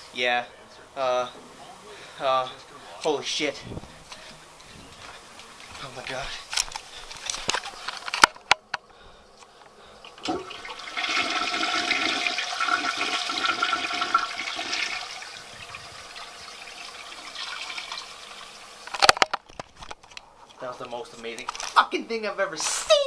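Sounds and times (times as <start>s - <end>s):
toilet flush clicks: 10.1s - 18.6s
toilet water rushing: 10.2s - 18.9s.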